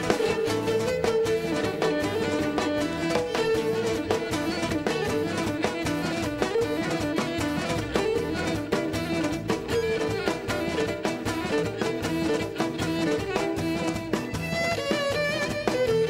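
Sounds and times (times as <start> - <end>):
bowed string melody: 0.0 - 16.0
strummed plucked strings: 0.0 - 16.0.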